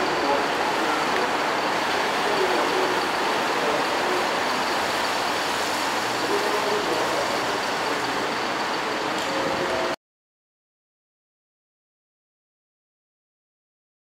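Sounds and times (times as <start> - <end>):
bus engine driving past: 0.0 - 10.0
traffic noise: 0.0 - 10.0.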